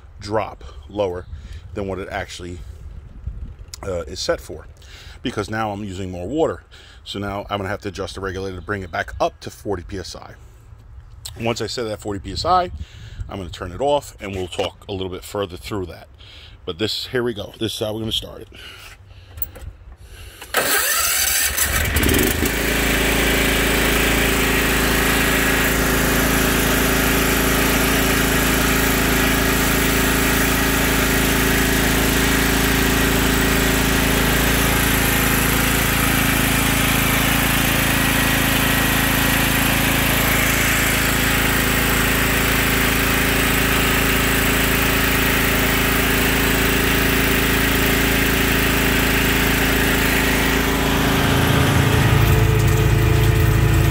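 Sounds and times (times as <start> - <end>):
mower engine starting and running: 18.6 - 53.9.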